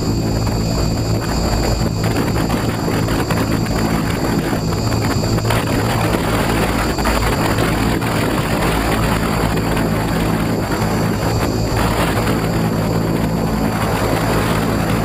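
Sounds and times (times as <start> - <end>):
helicopter rotor drone: 0.0 - 15.0
high motor whine: 0.0 - 15.0
wind on microphone: 0.0 - 15.0.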